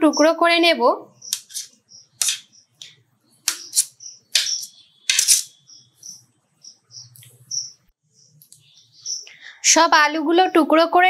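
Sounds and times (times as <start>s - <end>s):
knife clicking on steel plate: 3.5s - 5.5s.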